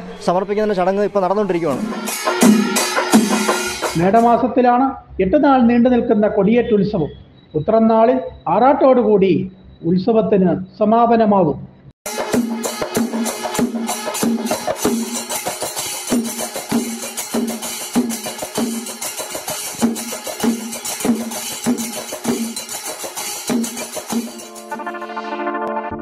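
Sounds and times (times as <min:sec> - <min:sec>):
ringing drum strokes: 0:01.6 - 0:04.4, 0:12.1 - 0:25.4.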